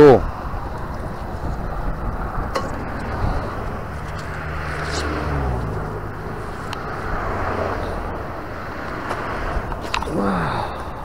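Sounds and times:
road noise: 0:00.0 - 0:11.0
vehicle engine hum: 0:00.0 - 0:11.0.

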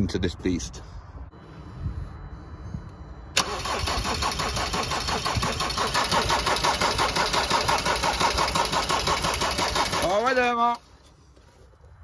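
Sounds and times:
diesel engine cranking and starting: 0:03.3 - 0:10.8.

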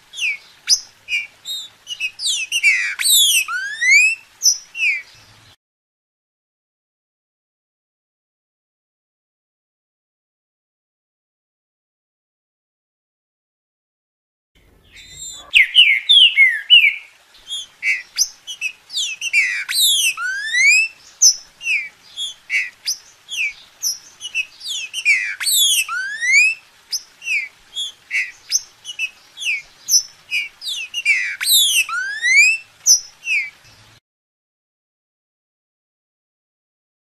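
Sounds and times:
bird singing whistled notes: 0:00.1 - 0:05.4, 0:14.8 - 0:33.8.

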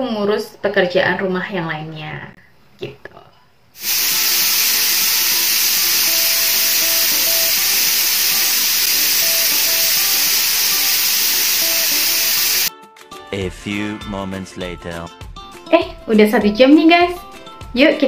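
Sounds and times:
pressure cooker hissing: 0:03.8 - 0:12.7.

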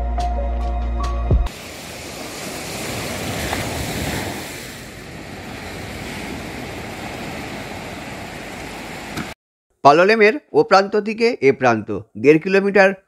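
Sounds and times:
small waves washing up beach: 0:01.5 - 0:09.4.

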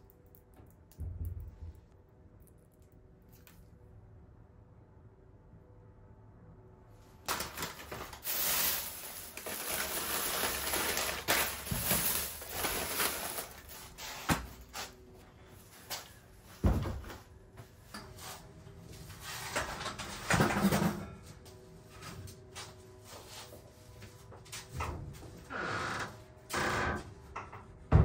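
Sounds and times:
paper bag rustling: 0:07.2 - 0:14.3.

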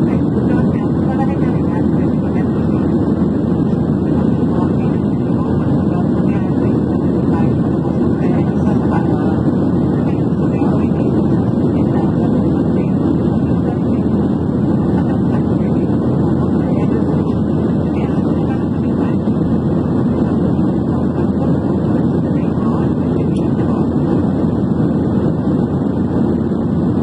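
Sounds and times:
airplane cabin engine drone: 0:00.0 - 0:27.0.

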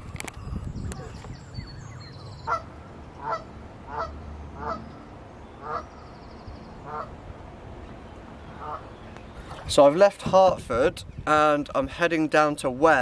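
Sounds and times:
goose honking: 0:02.5 - 0:04.9, 0:05.6 - 0:05.9, 0:06.9 - 0:07.1, 0:08.6 - 0:08.8.

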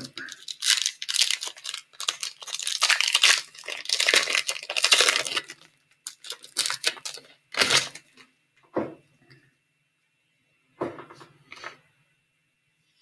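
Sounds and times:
wrapper tearing and crinkling: 0:00.0 - 0:08.2.

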